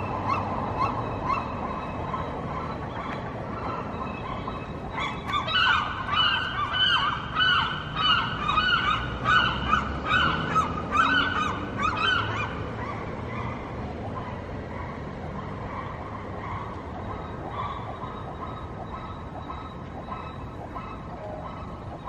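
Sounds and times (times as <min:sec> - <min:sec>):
gulls calling: 0:00.0 - 0:22.0.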